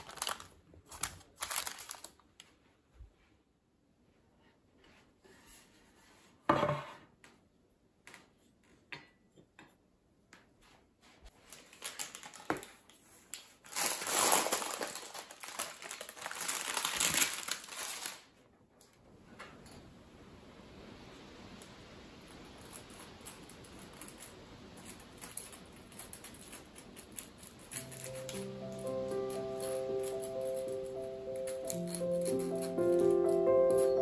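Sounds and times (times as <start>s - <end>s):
baking parchment crinkling: 0.0s - 2.6s, 11.3s - 18.5s, 22.1s - 34.0s.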